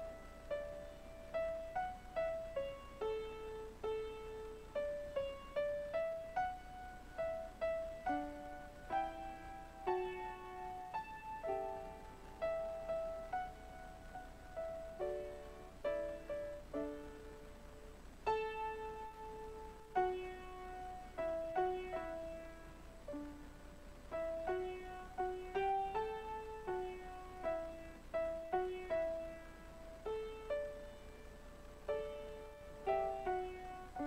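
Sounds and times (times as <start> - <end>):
solo piano slow melody: 0.0 - 34.0.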